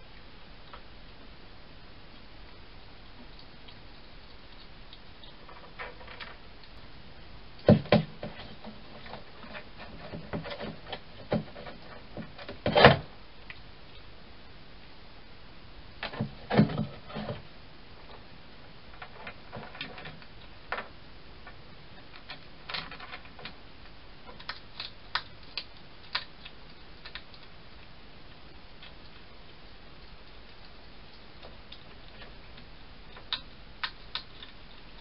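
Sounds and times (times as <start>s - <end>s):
hedgehog clicks and crunches: 24.2s - 35.0s.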